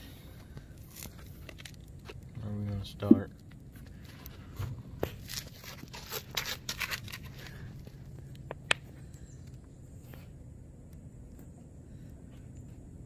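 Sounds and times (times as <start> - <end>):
soft plastic crinkles: 0.0 - 10.4.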